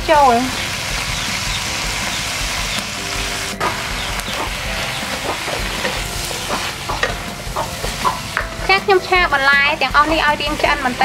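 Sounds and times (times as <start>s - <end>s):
vegetables sizzling in oil: 0.0s - 11.0s
stirring: 3.1s - 8.8s.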